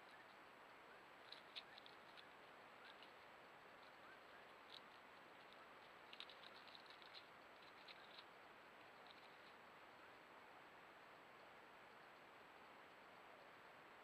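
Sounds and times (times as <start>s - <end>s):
ticks and rustles in dry leaves: 0.0s - 9.7s
quiet steady hiss: 0.0s - 14.0s.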